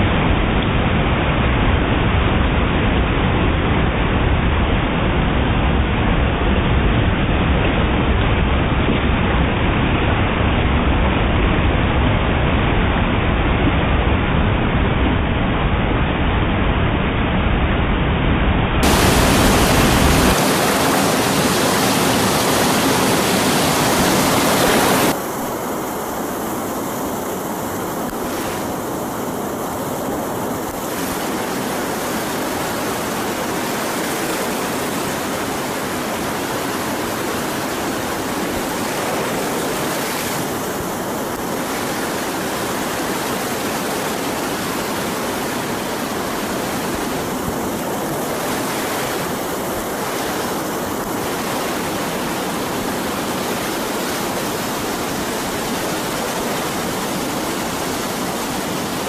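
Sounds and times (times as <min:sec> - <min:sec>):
whitewater rapids rushing: 0:18.8 - 0:59.0.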